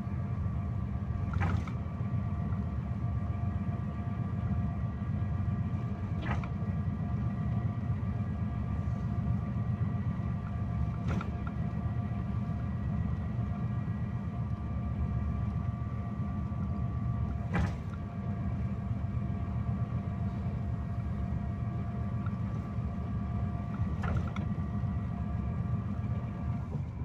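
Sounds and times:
engine and road rumble: 0.0 - 27.0
faint steady whine: 0.0 - 27.0.

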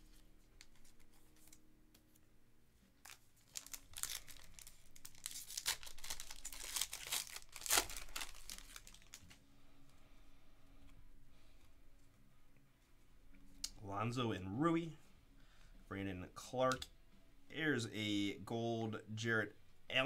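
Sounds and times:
handling trading cards: 0.0 - 2.3, 3.0 - 9.4
foil wrapper tearing and crinkling: 3.0 - 9.3.

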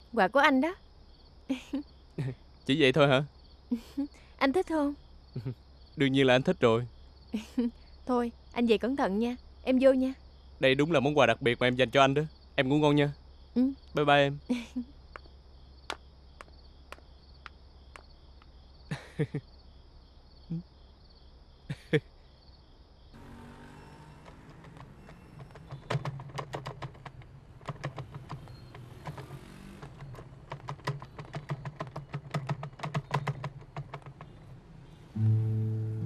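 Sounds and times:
night insects chirping: 0.0 - 35.7
sharp clicks: 24.6 - 34.5.

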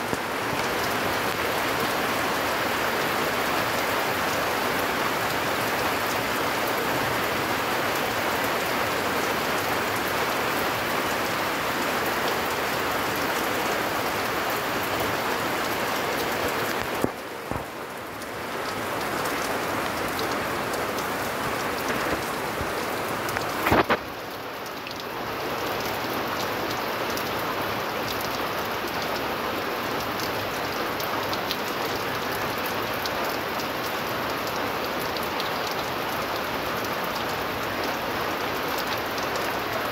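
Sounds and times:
heavy rain on a roof: 0.0 - 39.9.

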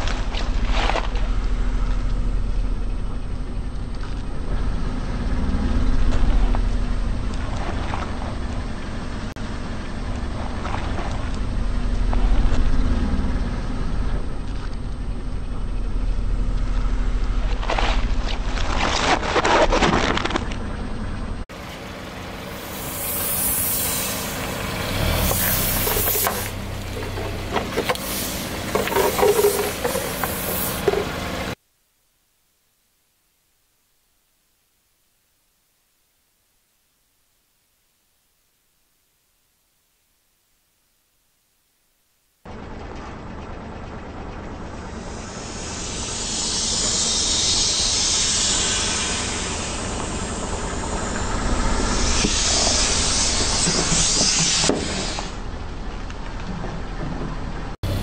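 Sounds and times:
car engine idling: 0.2 - 18.6, 20.4 - 31.6, 42.5 - 54.1, 55.0 - 58.0
air hissing out: 22.5 - 27.2, 27.8 - 31.6, 45.0 - 55.5.

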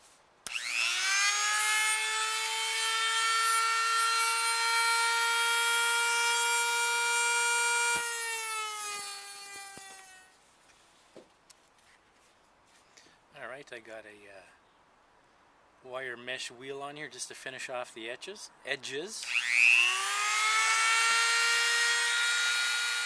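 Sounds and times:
rotary tool grinding metal: 0.4 - 10.3, 19.2 - 23.0.

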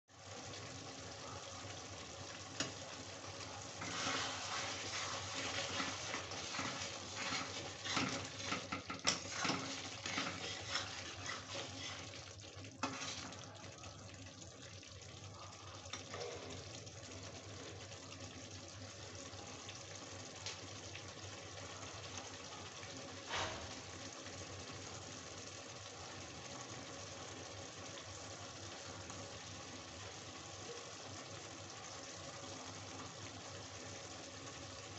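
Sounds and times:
curry bubbling and sizzling: 0.1 - 34.9
spatula scraping a steel pan: 3.8 - 12.2, 12.8 - 13.3.

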